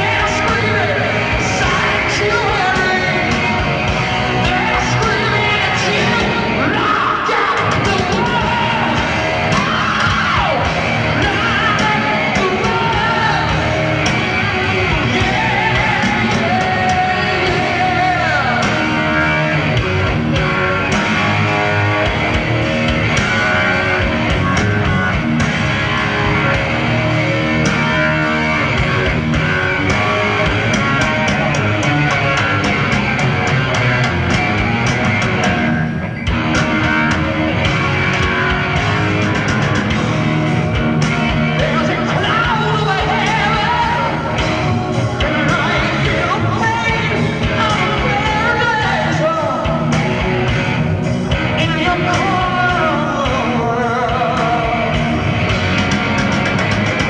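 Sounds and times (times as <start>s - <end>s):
man singing: 0.0s - 3.7s, 4.3s - 19.9s, 41.5s - 50.4s, 51.5s - 55.3s
heavy metal band playing live: 0.0s - 57.0s.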